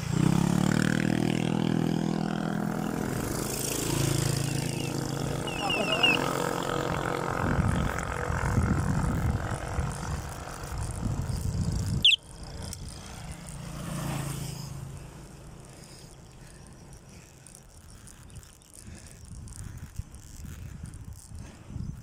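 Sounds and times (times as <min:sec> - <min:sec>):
motorcycle passing: 0:00.0 - 0:22.0
small motorcycle engine running: 0:00.0 - 0:22.0.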